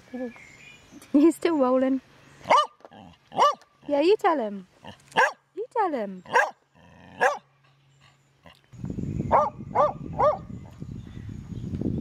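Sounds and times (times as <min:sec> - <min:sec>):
small dog yapping: 0:02.5 - 0:03.6, 0:05.1 - 0:05.4.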